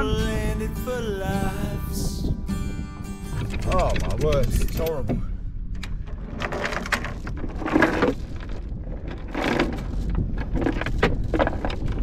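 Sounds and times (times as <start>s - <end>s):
wind rumble on microphone: 0.0s - 12.0s
anchor chain clunking and scraping: 3.4s - 5.1s, 5.7s - 12.0s.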